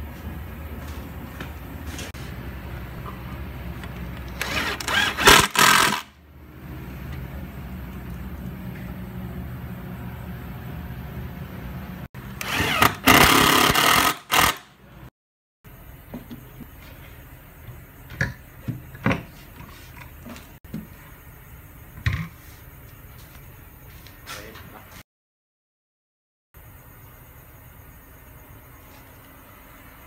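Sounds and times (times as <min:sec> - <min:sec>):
cordless drill driving screws: 0:04.3 - 0:06.1, 0:12.4 - 0:14.7
steady low hum: 0:06.2 - 0:12.8.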